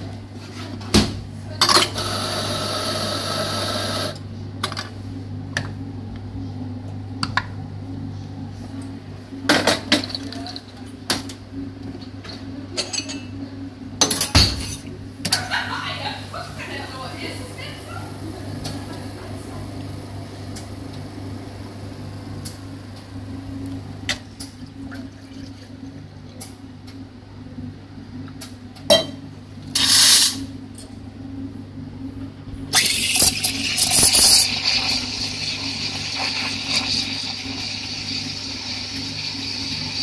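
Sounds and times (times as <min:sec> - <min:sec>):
espresso machine humming: 0:01.6 - 0:10.6, 0:15.5 - 0:26.1, 0:30.6 - 0:40.0
milk steaming hiss: 0:32.8 - 0:40.0.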